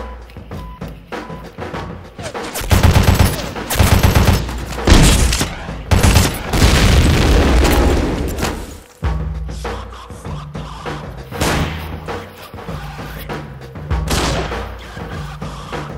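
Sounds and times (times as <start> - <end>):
rapid gunfire bursts: 2.2 - 7.0.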